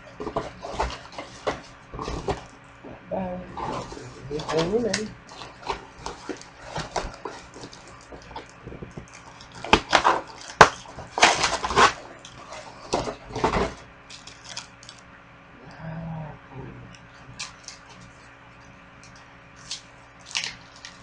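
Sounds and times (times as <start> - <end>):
cardboard scraping and rustling: 0.0 - 2.5, 3.5 - 14.6.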